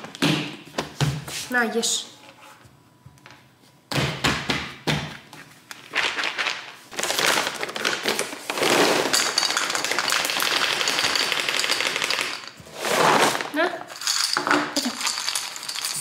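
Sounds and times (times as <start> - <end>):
kibble pouring into a bowl: 8.5 - 12.5, 14.0 - 16.0.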